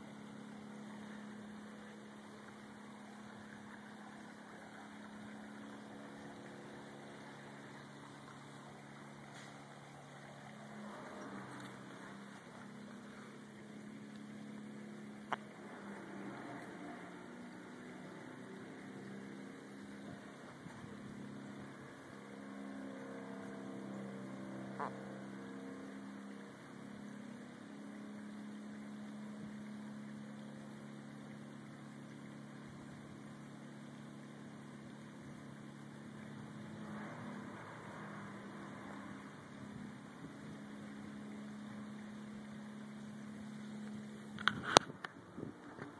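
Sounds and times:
faint low mechanical hum: 0.0 - 45.9.

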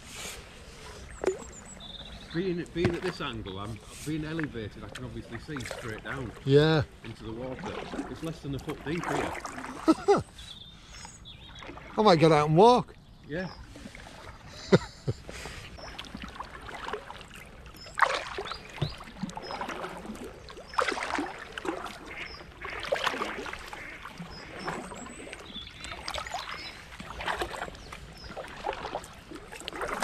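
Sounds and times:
kayak paddle splashing: 0.0 - 30.0
water dripping and trickling: 1.1 - 10.3, 15.8 - 30.0.

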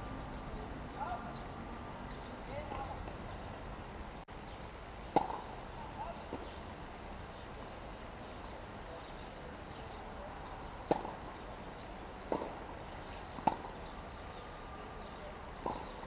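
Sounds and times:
tennis ball hitting racket and court: 5.0 - 5.5, 10.8 - 11.4, 12.2 - 13.9, 15.6 - 16.0.

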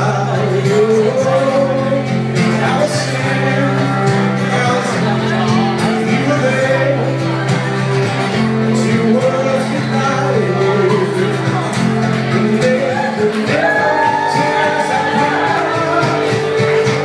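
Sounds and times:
acoustic guitar: 0.0 - 17.0
person singing: 0.0 - 17.0.

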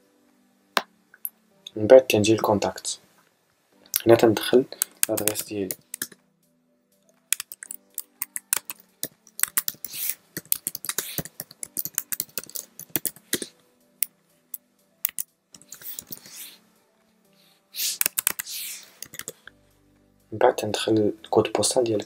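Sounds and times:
quiet background music: 0.0 - 22.0
typing on computer keyboard: 4.8 - 6.2, 7.3 - 8.8, 9.4 - 13.5, 18.0 - 19.4.

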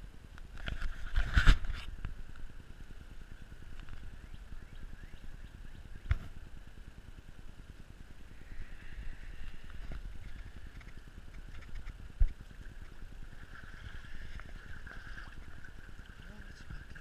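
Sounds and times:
faint steady hiss: 0.0 - 17.0
camera handling rumble: 0.5 - 2.1, 9.4 - 13.0.

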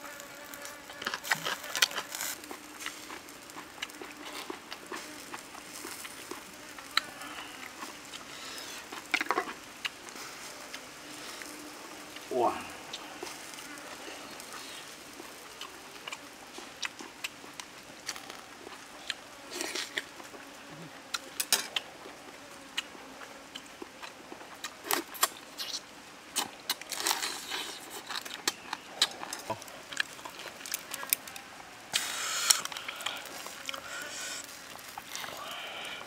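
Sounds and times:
chewing and slurping: 0.6 - 35.8
breathy exhale: 35.2 - 36.0.

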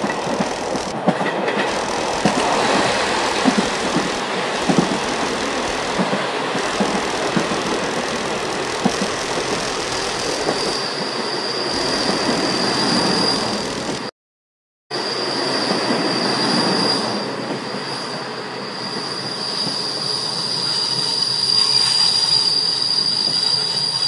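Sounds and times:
wheels clacking over rails: 0.0 - 10.8
train rumbling and rattling: 0.0 - 14.1
high wheel squeal: 1.7 - 14.1, 15.0 - 24.0.

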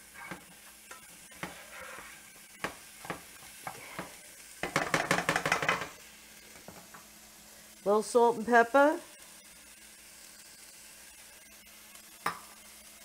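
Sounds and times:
faint sizzle: 0.0 - 13.0
spatula tapping and scraping pan: 0.2 - 7.1, 12.2 - 12.5.

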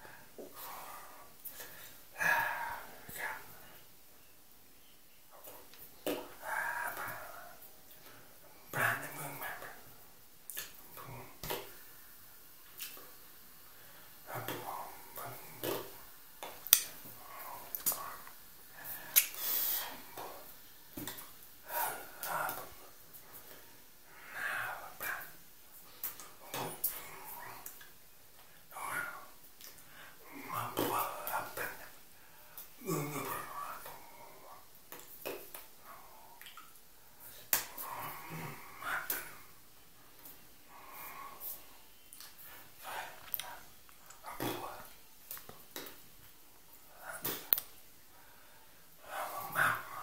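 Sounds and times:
man talking quietly: 8.6 - 9.9.

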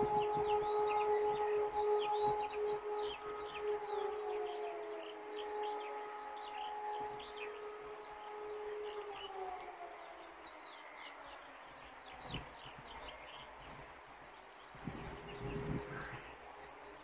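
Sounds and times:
wind rumble on microphone: 0.0 - 6.0, 12.2 - 17.0
birds chirping: 0.0 - 17.0
distant siren: 0.0 - 17.0.

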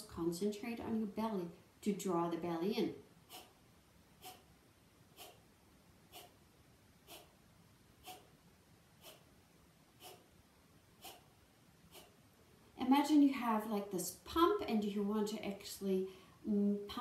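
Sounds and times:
forceful nasal exhalations: 4.2 - 4.5, 6.1 - 6.4, 7.0 - 7.4.

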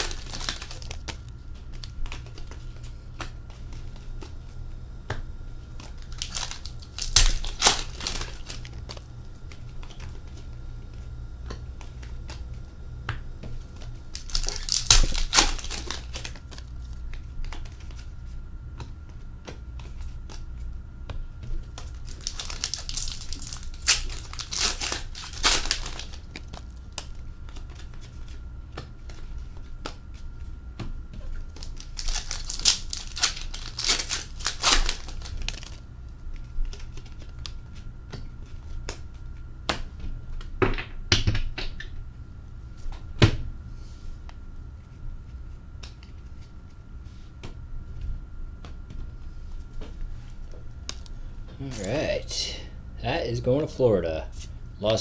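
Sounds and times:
card pack wrappers crinkling: 0.0 - 2.7, 5.8 - 10.4, 13.8 - 18.1, 21.7 - 28.4, 31.3 - 37.6
low steady hum: 0.0 - 55.0.

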